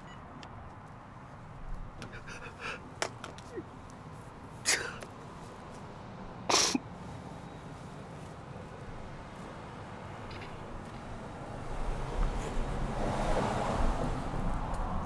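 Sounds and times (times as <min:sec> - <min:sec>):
man sobbing: 0:02.0 - 0:02.9, 0:04.7 - 0:05.0.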